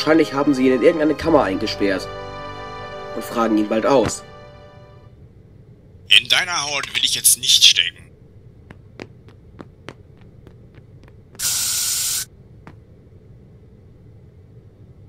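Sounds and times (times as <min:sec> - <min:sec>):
faint quick footstep clicks: 0:08.6 - 0:11.8
loud even hiss: 0:11.4 - 0:12.3.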